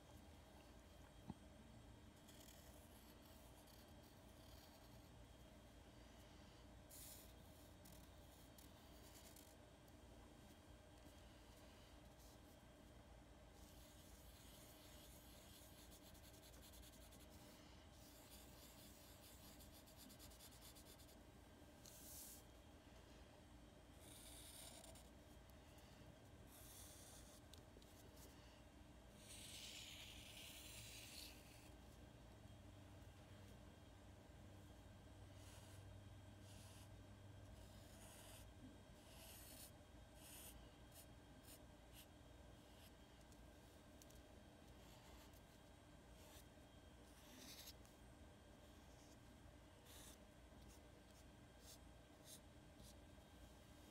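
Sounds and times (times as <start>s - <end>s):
marker scratching on paper: 2.2s - 5.1s, 6.9s - 9.6s, 13.6s - 21.2s, 21.8s - 22.4s, 24.0s - 25.1s, 26.5s - 28.3s, 29.2s - 31.7s, 35.4s - 35.8s, 36.4s - 36.8s, 37.6s - 42.9s, 44.8s - 45.6s, 47.0s - 47.9s, 49.8s - 53.0s.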